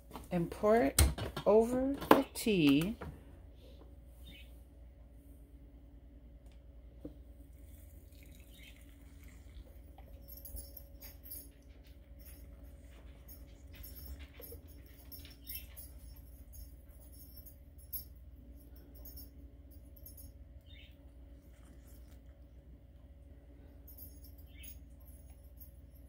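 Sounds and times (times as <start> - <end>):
steady low hum: 0.0 - 26.0
water pouring into a mug: 7.8 - 9.8.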